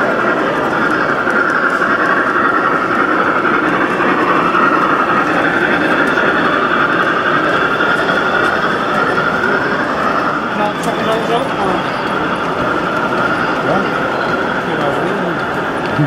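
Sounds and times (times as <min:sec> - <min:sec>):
model train wheels on track: 0:00.0 - 0:16.0.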